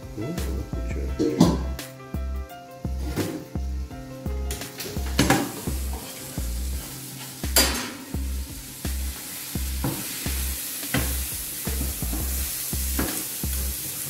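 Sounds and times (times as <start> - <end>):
background music with bass beat: 0.0 - 14.0
food sizzling in a pan: 3.0 - 14.0.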